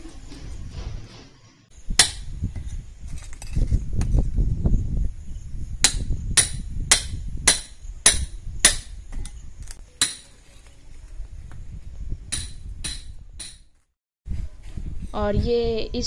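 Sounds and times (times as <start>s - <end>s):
hammer striking steel chisel: 2.0s - 2.3s, 5.8s - 9.3s, 10.0s - 10.3s, 12.3s - 13.7s.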